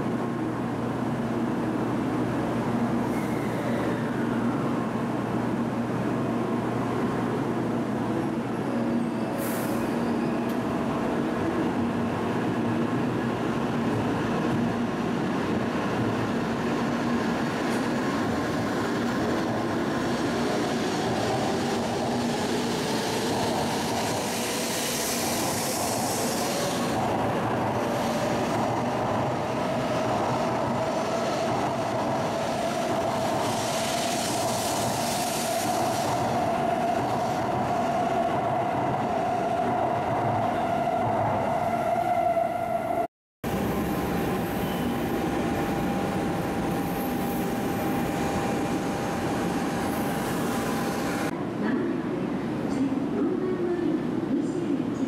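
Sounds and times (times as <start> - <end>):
train wheel noise: 9.4 - 51.4.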